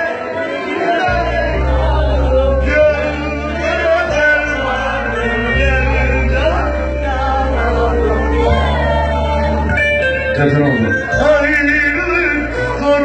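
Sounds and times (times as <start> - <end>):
live band music: 0.0 - 13.0.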